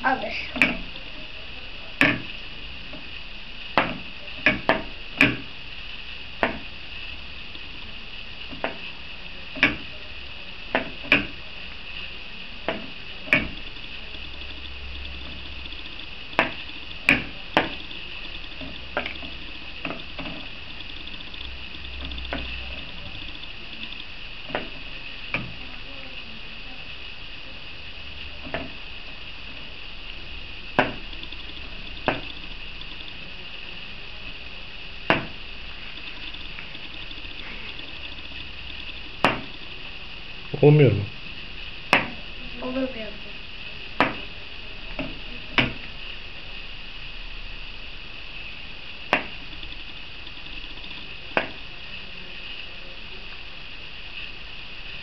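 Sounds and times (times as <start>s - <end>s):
steady high hiss: 0.0s - 55.0s.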